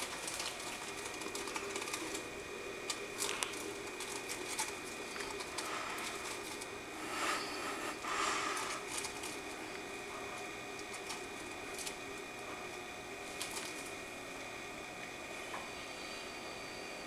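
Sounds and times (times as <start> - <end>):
dry rustles and crackles: 0.0 - 12.4, 13.2 - 14.1
faint steady hum: 0.0 - 17.0.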